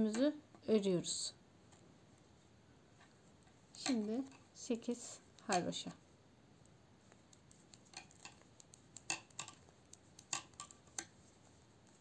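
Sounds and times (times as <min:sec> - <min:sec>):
knitting needles clicking: 0:03.7 - 0:04.5, 0:06.6 - 0:11.2.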